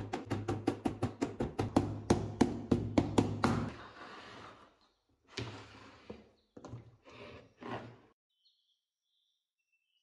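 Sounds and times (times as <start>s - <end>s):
hammer tapping nails into wood: 0.0s - 3.7s.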